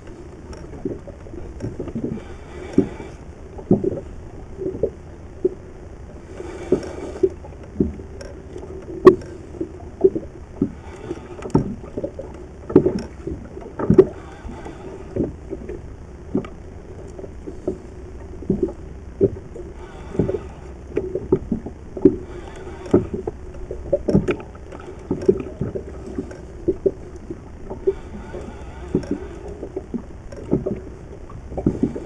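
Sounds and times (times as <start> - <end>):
steady low hum: 0.0 - 32.0
water slapping against hull: 0.0 - 32.0.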